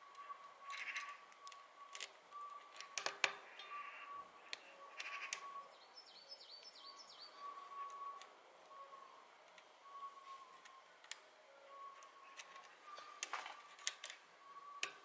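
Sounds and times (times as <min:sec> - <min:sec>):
bird chirping: 0:00.0 - 0:15.0
small metallic clicks and taps: 0:00.1 - 0:03.8, 0:12.0 - 0:14.2, 0:14.8 - 0:15.0.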